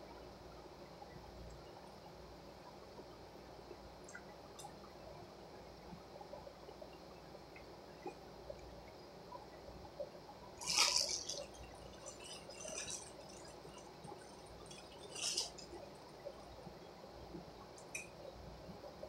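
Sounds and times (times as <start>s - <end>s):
plastic wrapper crinkling: 10.6s - 15.8s.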